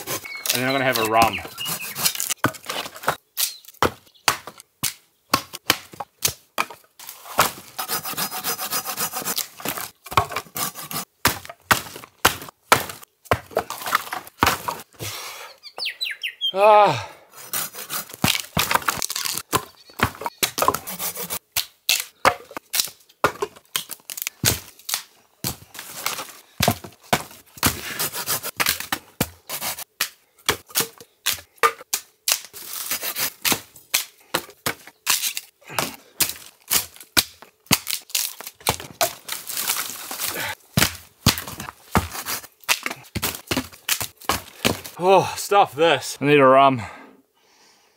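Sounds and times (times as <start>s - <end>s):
branches cracking and snapping: 0.4s - 6.4s, 18.1s - 19.6s, 21.5s - 26.8s, 30.7s - 45.0s.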